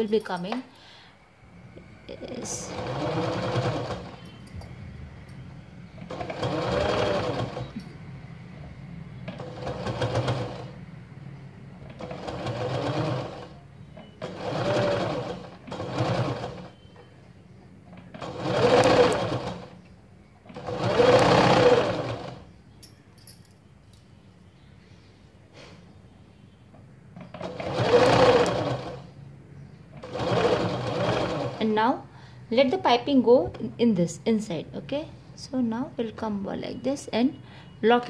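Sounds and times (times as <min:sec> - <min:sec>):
sewing machine stitching: 0:02.4 - 0:04.4, 0:06.0 - 0:07.8, 0:09.2 - 0:10.8, 0:11.8 - 0:16.8, 0:17.9 - 0:19.8, 0:20.5 - 0:22.5, 0:27.2 - 0:29.1, 0:30.0 - 0:31.7.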